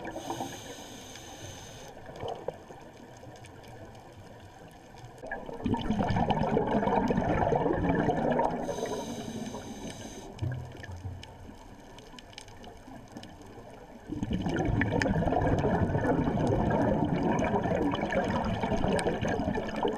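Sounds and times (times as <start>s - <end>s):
regulator inhalation hiss: 0.0s - 2.0s, 8.6s - 10.4s
exhaled bubbles gurgling underwater: 0.0s - 19.9s.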